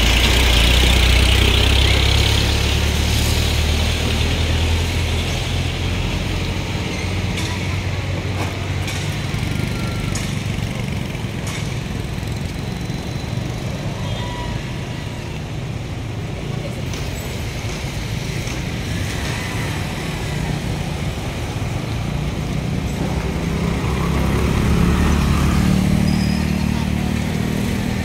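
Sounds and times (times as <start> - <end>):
vehicle engine running: 0.0 - 3.9.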